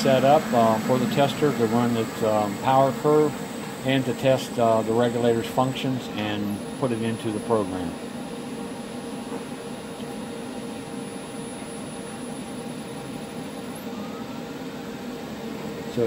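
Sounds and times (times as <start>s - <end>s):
electric motor spinning alternator: 0.0s - 16.0s
faint rising whine: 0.0s - 16.0s.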